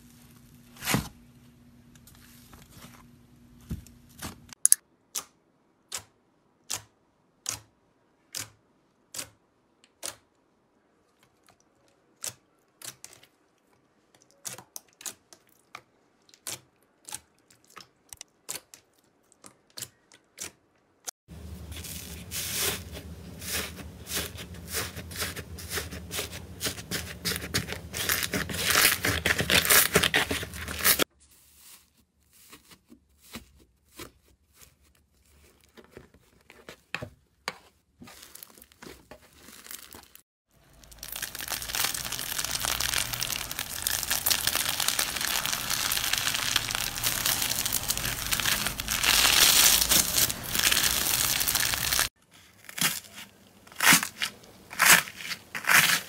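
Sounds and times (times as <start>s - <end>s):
crunchy slime crackling: 21.4s - 31.8s, 38.0s - 56.0s
slime crust crackling: 21.4s - 31.8s, 38.1s - 53.1s.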